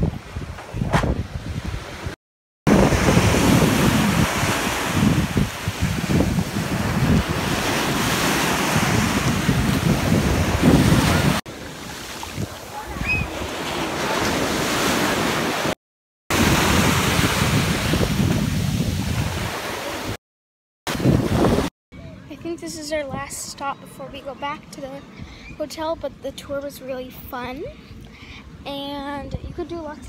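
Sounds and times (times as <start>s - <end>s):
wind buffeting microphone: 0.0s - 11.4s, 16.3s - 20.2s, 20.9s - 21.7s, 28.5s - 30.0s
small waves washing on beach: 1.6s - 20.2s.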